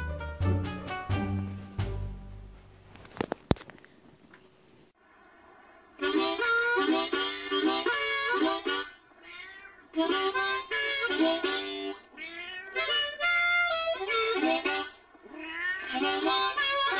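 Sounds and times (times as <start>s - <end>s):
harmonica chords: 6.0s - 9.0s, 10.0s - 12.1s, 12.7s - 15.0s, 15.9s - 16.9s
cat meowing: 9.2s - 10.0s, 12.1s - 13.5s, 15.2s - 16.9s.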